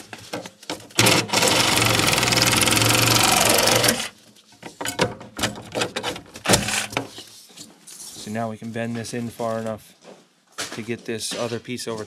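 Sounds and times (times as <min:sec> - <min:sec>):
power cutting tool buzzing: 0:01.0 - 0:04.1.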